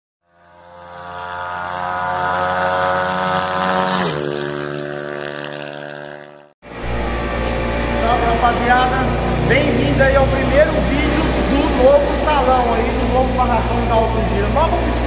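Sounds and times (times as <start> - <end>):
engine revving: 0.2 - 15.0
low steady rumble: 6.7 - 15.0.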